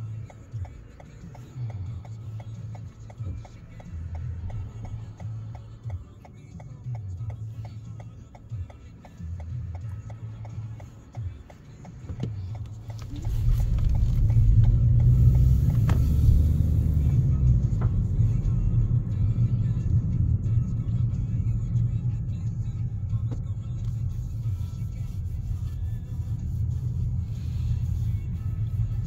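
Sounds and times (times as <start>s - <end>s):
car engine and tyre rumble: 0.0s - 29.0s
faint ticks: 0.2s - 16.0s.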